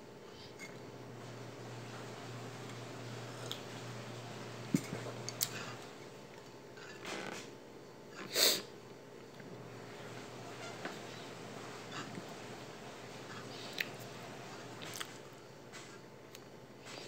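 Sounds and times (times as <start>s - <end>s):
person sniffing: 8.2s - 8.7s.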